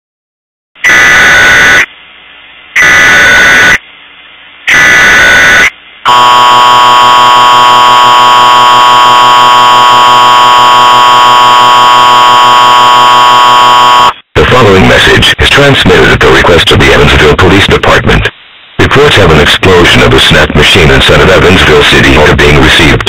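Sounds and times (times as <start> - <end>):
screeching data tones: 0.8 - 1.9, 2.8 - 3.8, 4.7 - 14.2
harsh two-tone alert signal: 4.7 - 14.2.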